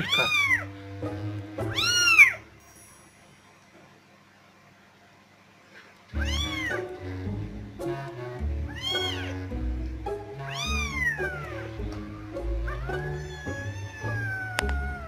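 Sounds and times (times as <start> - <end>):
kitten mewing loudly: 0.0 - 0.7, 12.7 - 15.0
background music with bass line: 6.2 - 13.2.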